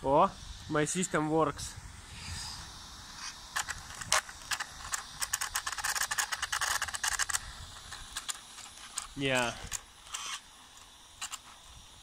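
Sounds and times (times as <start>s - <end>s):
toy car mechanism clicking: 3.2s - 11.8s.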